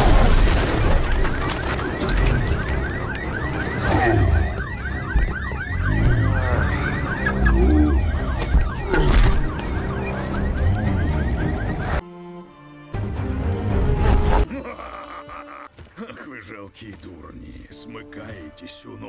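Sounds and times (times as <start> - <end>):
emergency siren yelping: 0.6 - 12.0.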